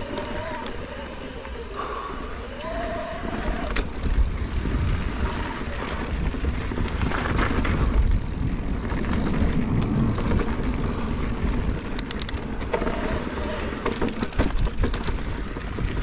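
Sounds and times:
tyres rumbling on dirt: 0:00.0 - 0:16.0
wind on microphone: 0:02.9 - 0:13.8.

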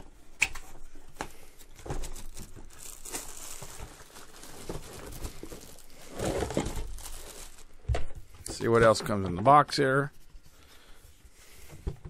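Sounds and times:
plastic bag crinkling: 0:01.8 - 0:08.2.

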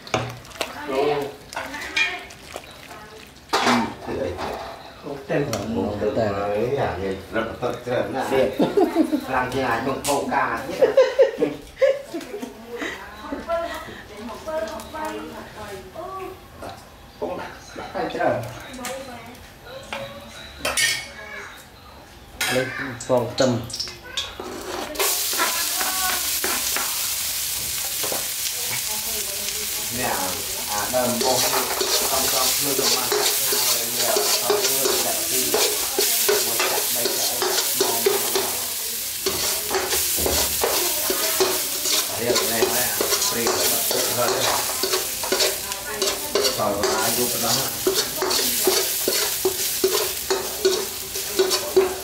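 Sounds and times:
garlic sizzling in hot oil: 0:00.0 - 0:06.8, 0:23.0 - 0:52.0
metal spatula scraping wok: 0:24.4 - 0:27.1, 0:29.8 - 0:52.0.

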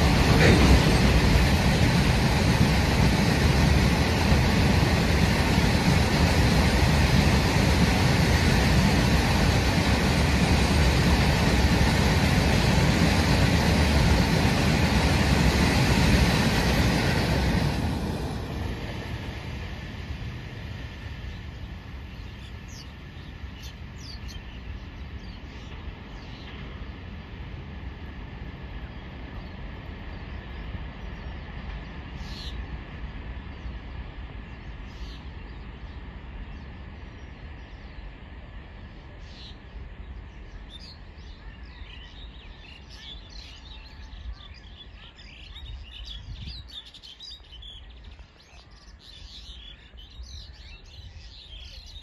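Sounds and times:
birds chirping: 0:00.0 - 0:12.4, 0:21.2 - 0:27.3, 0:28.7 - 0:52.0
freight train rumble: 0:00.0 - 0:52.0.

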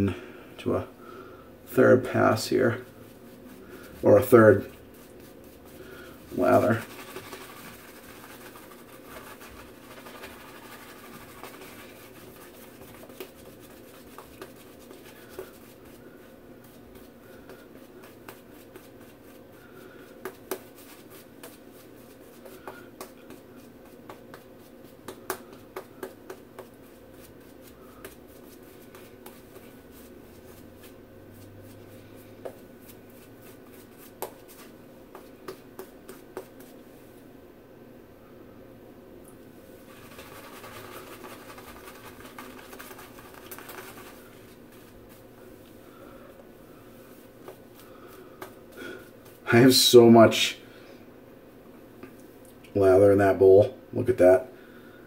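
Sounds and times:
shaving brush brushing on scalp: 0:02.4 - 0:16.0, 0:20.5 - 0:22.7, 0:39.8 - 0:45.2.

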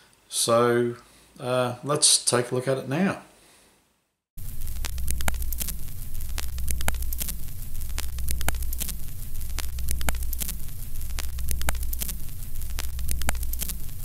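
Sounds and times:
film crackle and pops: 0:04.4 - 0:14.0
low hum: 0:04.4 - 0:14.0.

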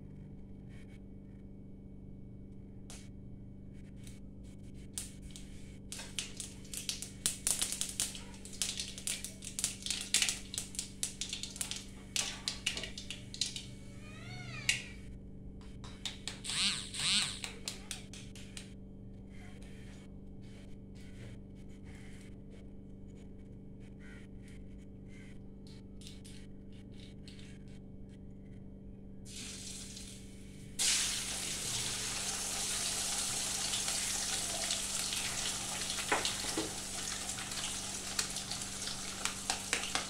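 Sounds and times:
hot oil crackling and spitting: 0:05.0 - 0:13.7, 0:29.3 - 0:40.0
cat meowing: 0:13.9 - 0:15.0.

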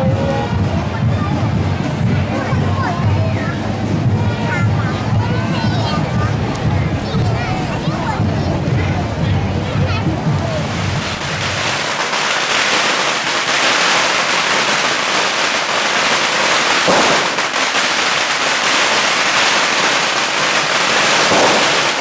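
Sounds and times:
firecrackers crackling: 0:00.0 - 0:22.0.

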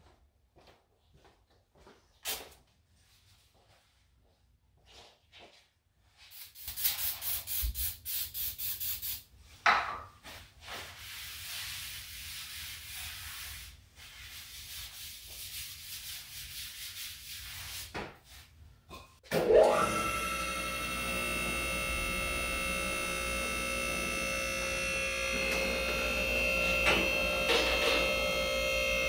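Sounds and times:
rag scrubbing concrete floor: 0:10.2 - 0:18.7, 0:20.9 - 0:28.8.

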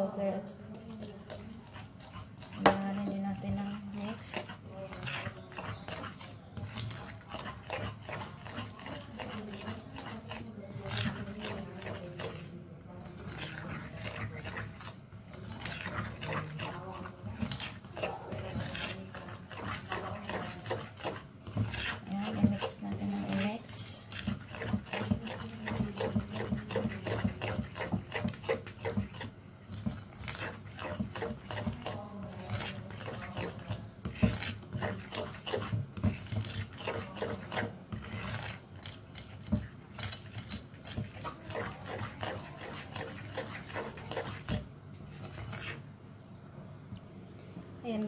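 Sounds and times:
utensil scraping batter in glass bowl: 0:00.0 - 0:46.0.

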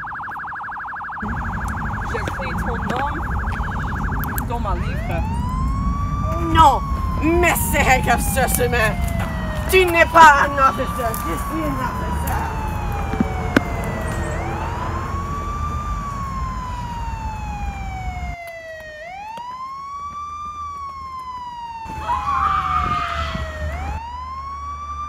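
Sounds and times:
police siren wailing: 0:00.0 - 0:25.0.

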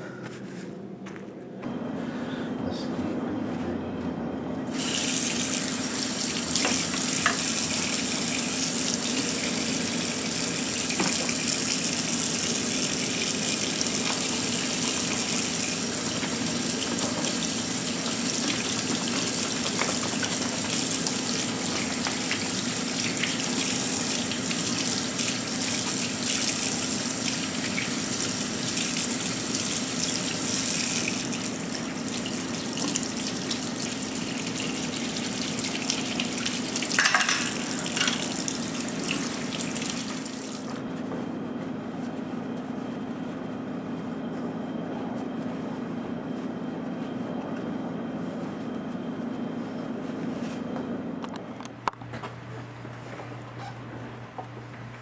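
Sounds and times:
faucet running into a sink: 0:04.8 - 0:40.6.

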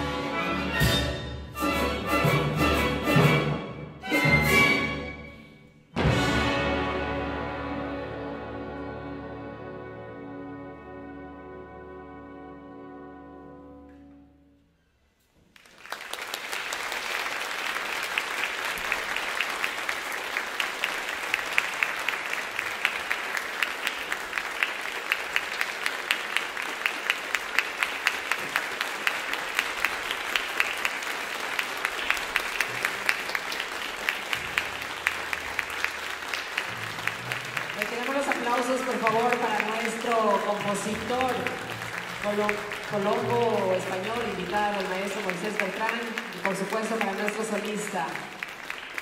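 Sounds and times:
audience applause: 0:15.5 - 0:49.0.

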